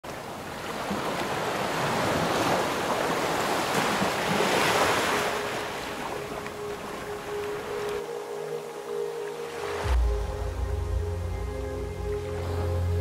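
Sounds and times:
held music tone: 6.4s - 13.0s.

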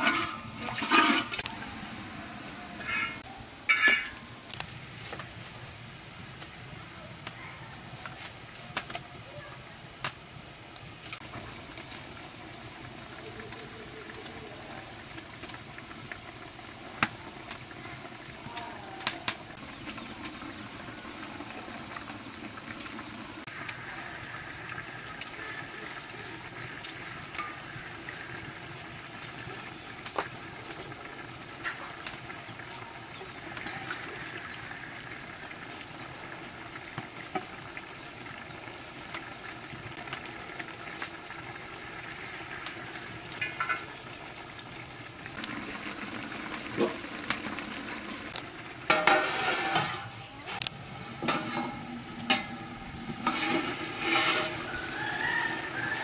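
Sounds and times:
utensils clinking against a pot: 0.0s - 1.5s, 2.8s - 4.2s, 43.4s - 43.9s, 48.9s - 50.1s, 51.2s - 55.5s
curry hissing in a pot: 0.0s - 56.0s.

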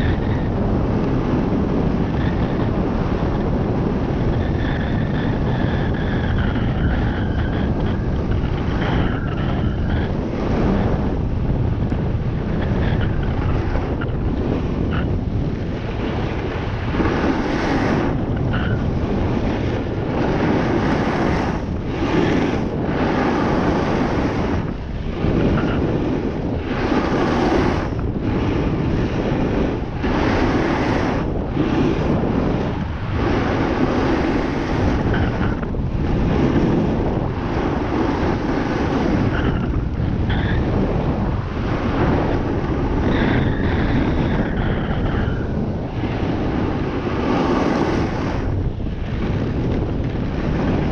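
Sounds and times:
wind rushing over microphone: 0.0s - 50.9s.

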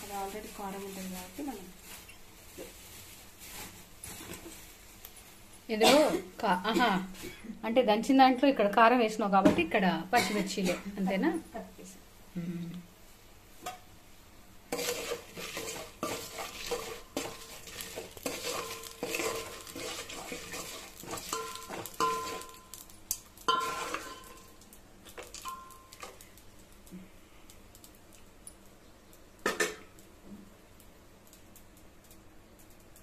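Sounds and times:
oil sizzling: 0.0s - 7.3s, 13.0s - 33.0s
metal spoon scraping a pot: 14.7s - 22.6s, 23.5s - 24.4s.

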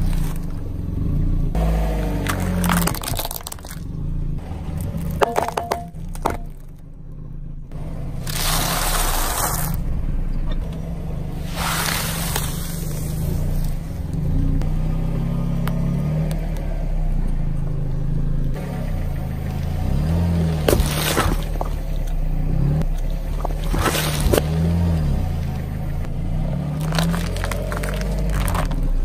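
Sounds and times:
chips crunching under tyre: 0.0s - 0.7s, 1.9s - 6.8s, 8.2s - 9.8s, 11.4s - 13.8s, 20.5s - 22.2s, 22.8s - 24.8s, 26.6s - 29.0s
sharp cracks: 2.2s - 3.9s, 26.8s - 29.0s.

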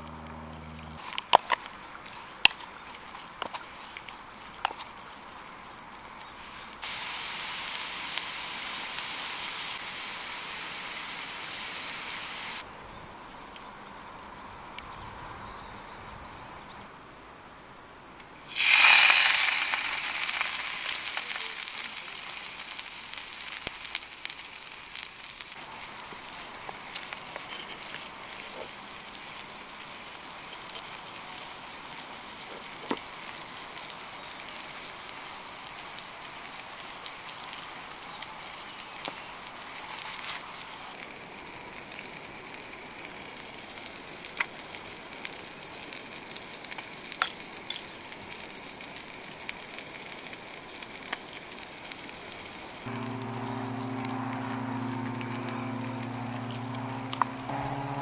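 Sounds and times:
food sizzling in a hot pan: 6.3s - 12.6s, 18.5s - 58.0s.

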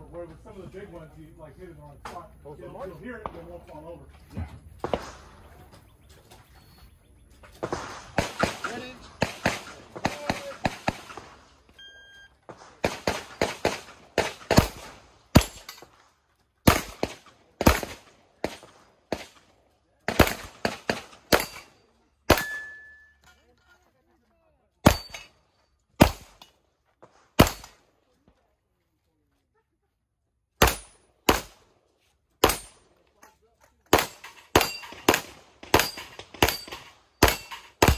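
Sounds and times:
gunshots: 4.8s - 5.7s, 7.5s - 11.7s, 12.4s - 15.9s, 16.6s - 22.7s, 24.8s - 25.3s, 26.0s - 27.8s, 30.6s - 31.7s, 32.4s - 32.8s, 33.9s - 37.9s.

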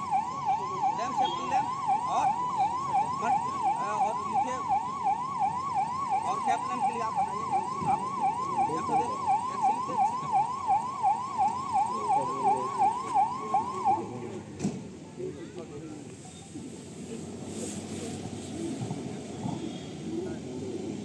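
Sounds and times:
electronic siren yelping: 0.0s - 14.4s.

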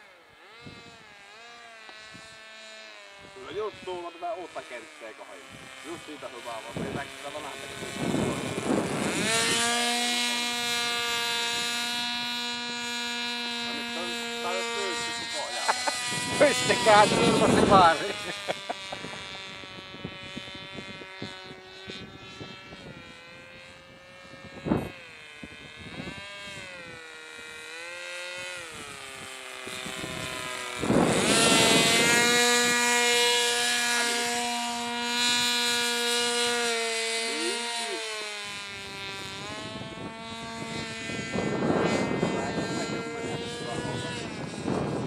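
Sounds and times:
model plane motor whining: 0.0s - 45.0s.

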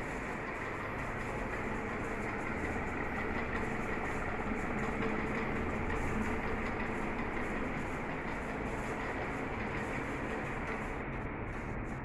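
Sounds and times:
ceiling fan whirring: 0.0s - 12.0s
faint motor hum: 0.0s - 12.0s.

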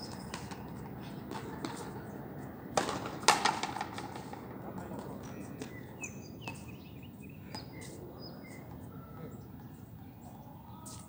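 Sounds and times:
small birds chirping: 5.2s - 11.0s.

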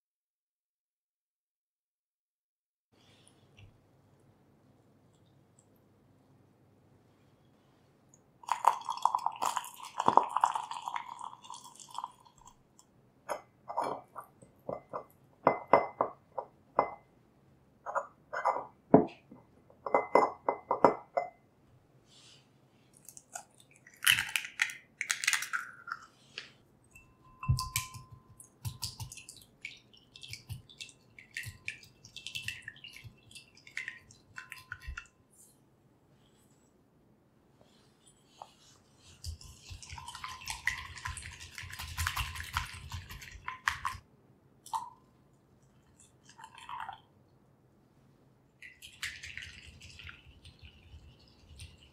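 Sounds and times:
spoon clinking on ceramic: 13.3s - 17.0s, 19.9s - 21.4s, 26.9s - 29.3s.

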